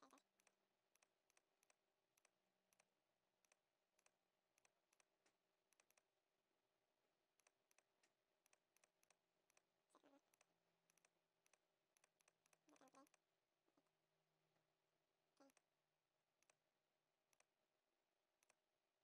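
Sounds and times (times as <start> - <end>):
computer mouse clicks: 0.0 - 6.1, 7.4 - 13.2, 16.4 - 16.6, 17.3 - 17.5, 18.4 - 18.6.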